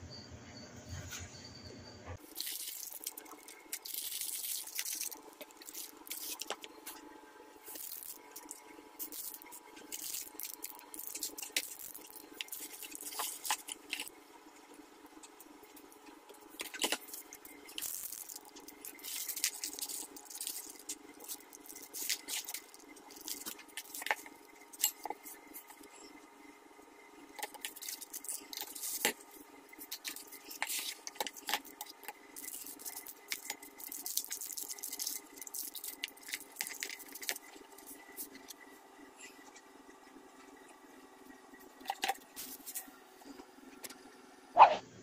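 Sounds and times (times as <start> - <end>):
plastic crinkling: 2.2 - 7.0, 7.6 - 26.2, 27.3 - 38.6, 41.8 - 42.9
small parts clicking together: 7.7 - 14.1, 16.3 - 25.9, 27.4 - 38.6.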